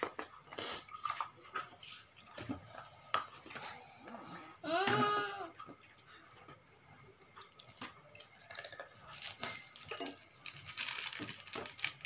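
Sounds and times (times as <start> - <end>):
plastic packet rustling: 8.5 - 12.0.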